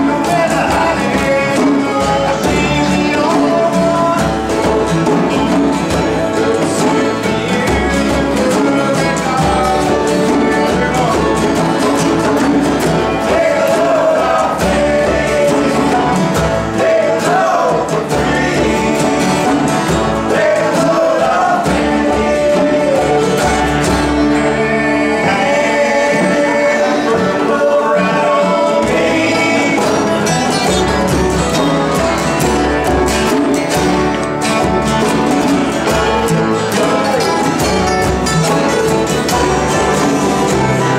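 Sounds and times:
acoustic guitars strumming: 0.0s - 40.9s
hand drum beat: 0.0s - 40.9s
slide resonator guitar: 0.0s - 40.9s.

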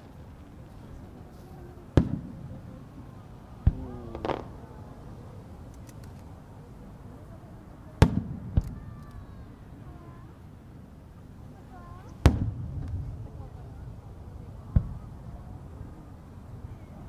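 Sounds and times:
faint crowd voices: 0.0s - 17.0s
firework launch thump: 3.6s - 4.5s, 12.2s - 13.0s.

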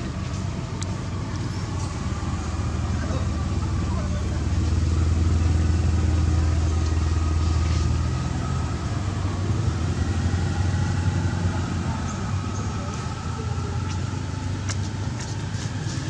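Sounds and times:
low engine hum: 0.0s - 16.0s.

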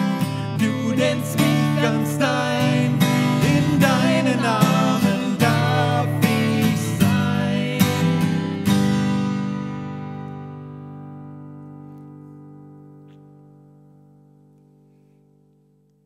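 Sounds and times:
strummed acoustic guitar: 0.0s - 15.8s
man and woman singing: 0.4s - 8.5s.

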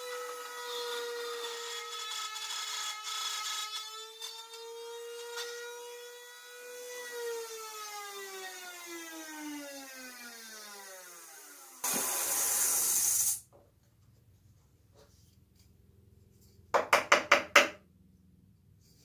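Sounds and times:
router whine spinning down: 6.6s - 11.9s
loud hiss: 11.8s - 13.4s
sharp taps of workpiece handling: 16.8s - 17.8s.

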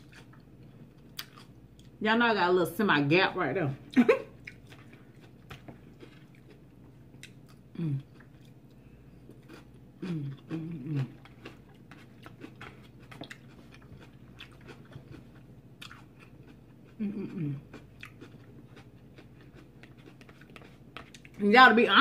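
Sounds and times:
person chewing crunchy food: 0.0s - 2.0s, 4.3s - 21.4s.

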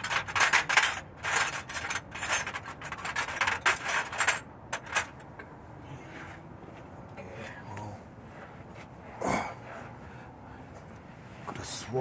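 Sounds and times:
metal sockets clinking: 0.0s - 5.4s.

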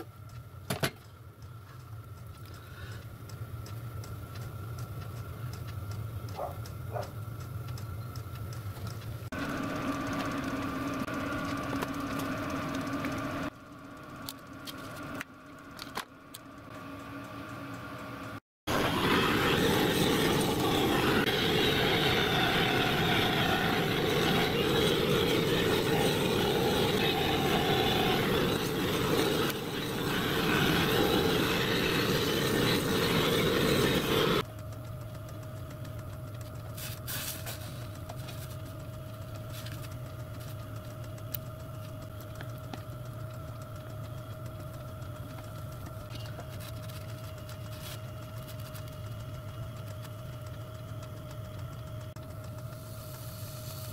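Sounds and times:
faint hum: 0.0s - 53.9s
blowtorch roaring: 18.7s - 34.5s.

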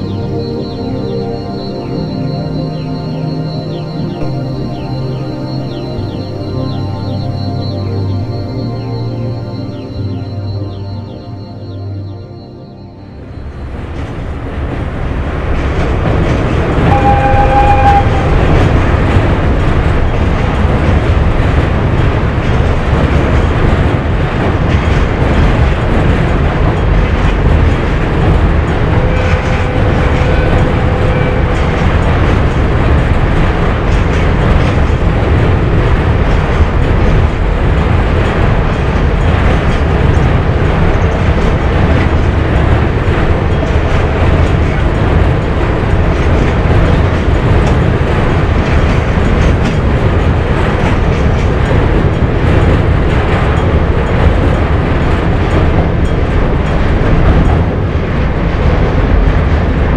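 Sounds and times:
freight train rumble: 0.0s - 59.9s
train wheel clatter: 13.6s - 59.9s.

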